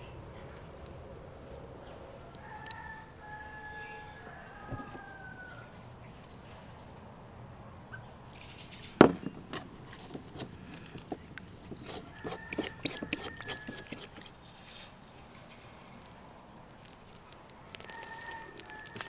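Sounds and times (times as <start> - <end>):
rooster crowing: 2.2 - 5.8, 11.9 - 14.2, 17.8 - 19.0
hands dabbing in wooden bowl: 9.0 - 14.4.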